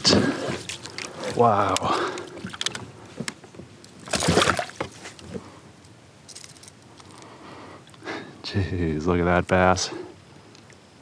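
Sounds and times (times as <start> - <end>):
water sloshing and splashing: 0.0 - 5.6.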